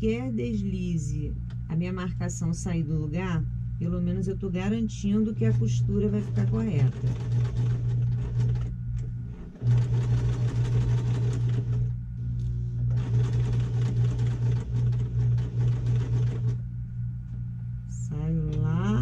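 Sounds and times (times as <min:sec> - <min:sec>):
sewing machine stitching: 0:06.0 - 0:08.7, 0:09.3 - 0:11.9, 0:12.9 - 0:16.6.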